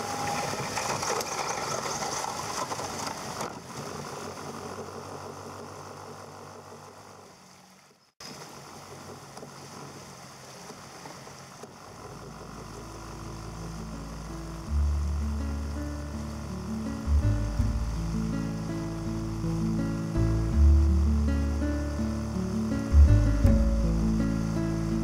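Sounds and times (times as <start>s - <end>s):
boat motor running: 8.6s - 25.0s
quiet music with low held notes: 12.8s - 25.0s.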